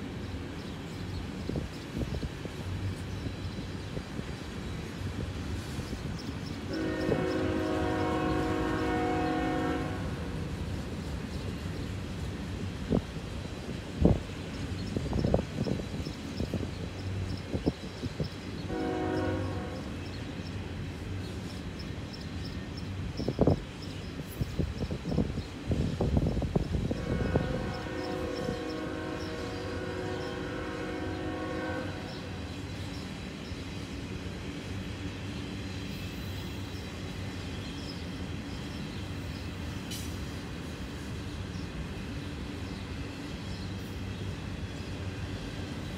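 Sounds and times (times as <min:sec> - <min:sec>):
freight cars rolling on rails: 0:00.0 - 0:45.9
locomotive horn chord: 0:06.7 - 0:10.3, 0:18.7 - 0:19.9, 0:27.0 - 0:32.4.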